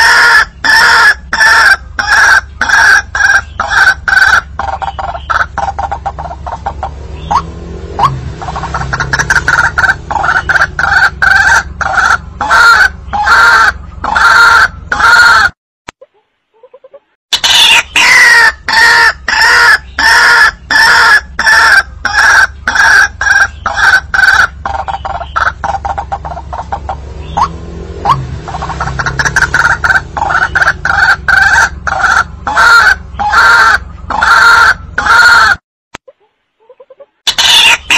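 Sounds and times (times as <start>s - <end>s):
waterhen calling harshly: 0.0s - 15.5s, 16.6s - 35.6s, 36.6s - 37.9s
steady low hum: 1.8s - 14.1s, 21.8s - 34.2s.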